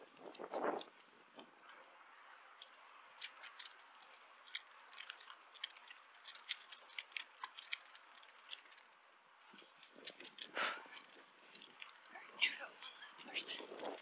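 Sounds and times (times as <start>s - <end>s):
faint steady hiss: 0.0s - 14.0s
bicycle clicks and ticks: 2.6s - 12.1s.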